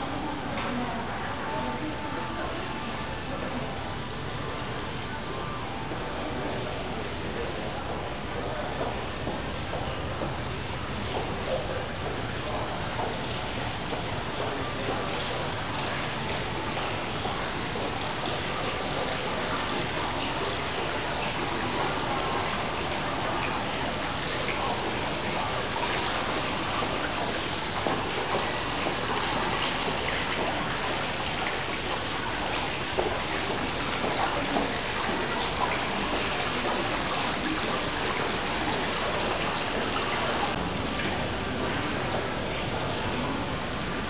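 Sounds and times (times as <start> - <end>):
fountain water splashing: 10.8 - 44.0.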